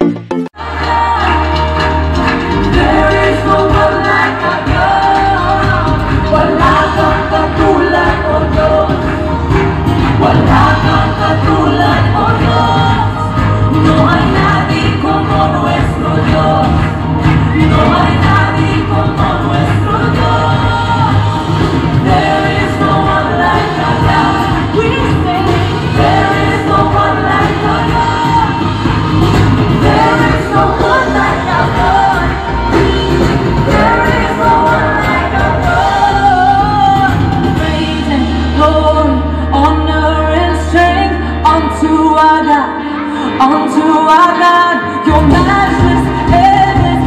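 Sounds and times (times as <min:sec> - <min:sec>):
song with singing over loudspeakers: 0:00.0 - 0:47.0.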